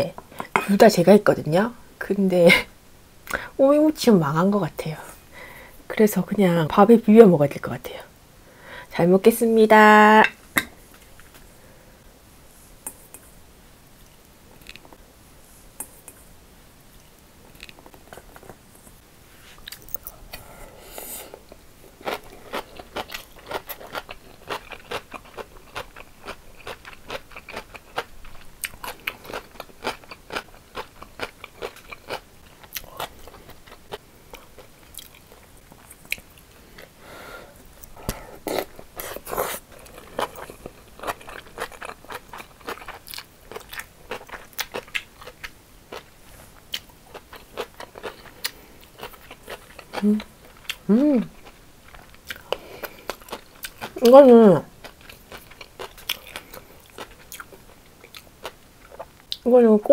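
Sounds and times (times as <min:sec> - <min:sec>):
chewing and crunching food: 0:21.5 - 0:37.0, 0:37.8 - 0:59.5.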